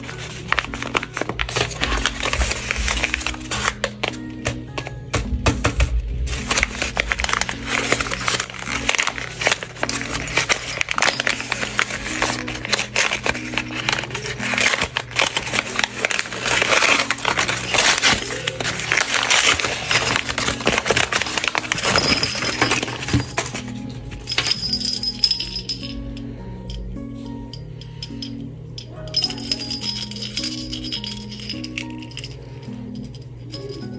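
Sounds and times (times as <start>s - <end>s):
packaging crinkling: 0.0s - 4.3s, 6.2s - 25.5s
soft background music: 0.0s - 33.9s.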